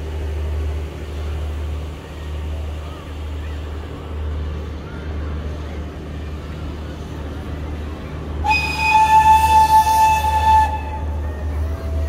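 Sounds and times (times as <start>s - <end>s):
train rumble: 0.0s - 12.0s
steam whistle: 8.4s - 11.2s.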